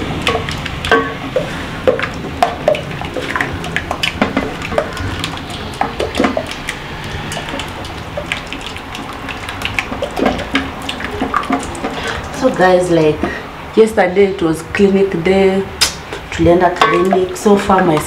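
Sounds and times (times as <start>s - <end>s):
porridge sloshing in a pot: 0.0s - 13.5s
spoon knocking against pot: 0.3s - 5.0s, 5.7s - 6.6s, 16.8s - 18.0s.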